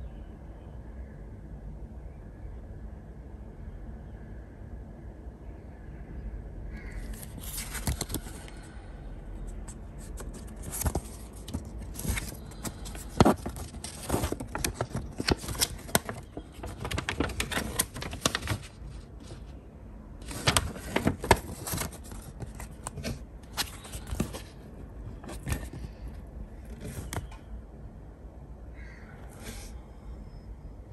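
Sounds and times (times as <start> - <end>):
paper rustling and crackling: 7.0 - 8.8, 9.5 - 19.6, 20.2 - 27.5.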